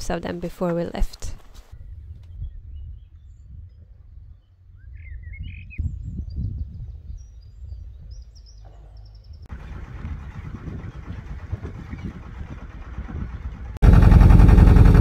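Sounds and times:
small birds chirping: 1.6s - 12.5s
wind rumbling on microphone: 1.7s - 13.9s
boat motor hum: 8.7s - 15.0s
water noise: 9.5s - 15.0s.

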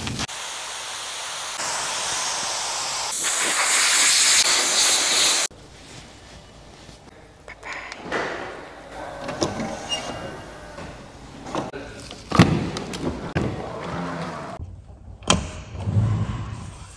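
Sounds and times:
compressed air blow gun blasting: 0.0s - 5.5s
water hissing from hose nozzle: 0.3s - 5.5s.

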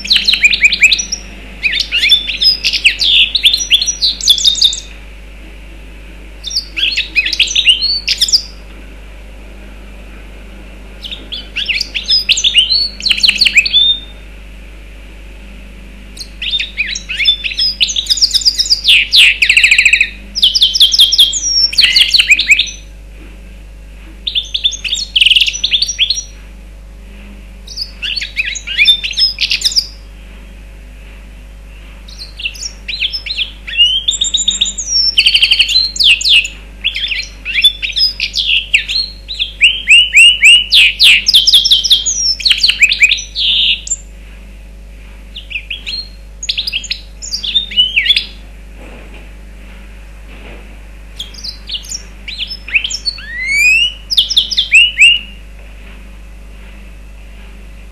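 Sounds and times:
bird singing twittering trills: 0.0s - 5.0s, 6.4s - 8.7s, 11.0s - 14.2s, 16.2s - 22.9s, 24.2s - 26.4s, 27.6s - 30.1s, 31.7s - 44.1s, 45.3s - 48.4s, 51.2s - 55.5s.

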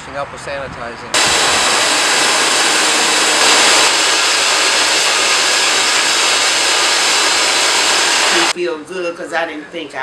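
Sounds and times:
shop vacuum running: 1.2s - 8.6s.

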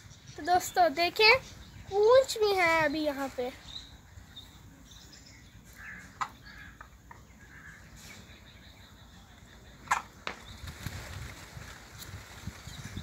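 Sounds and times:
faint bird calls: 3.6s - 10.7s.

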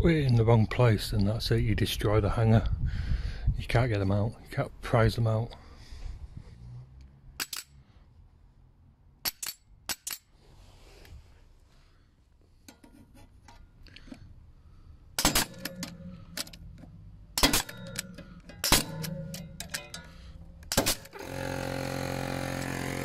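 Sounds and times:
pneumatic nailer firing: 15.2s - 16.6s, 17.4s - 23.0s.

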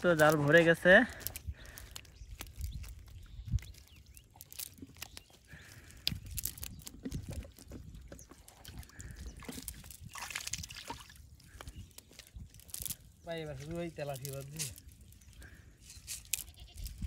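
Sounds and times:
wet net mesh rustling: 8.4s - 11.2s.

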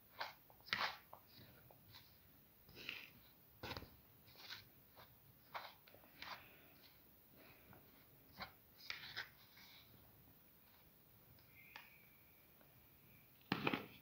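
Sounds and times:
spoon scraping dry flour: 0.0s - 10.0s.

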